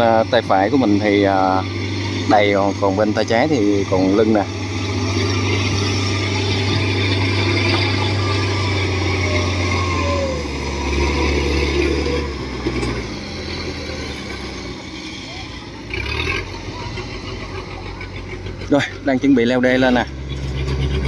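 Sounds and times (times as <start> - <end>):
tracked cart engine running: 0.0 - 21.0.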